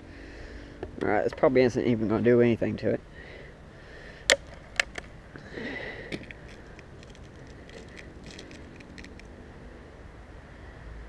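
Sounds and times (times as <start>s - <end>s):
air rifle action clicks: 4.3s - 5.1s.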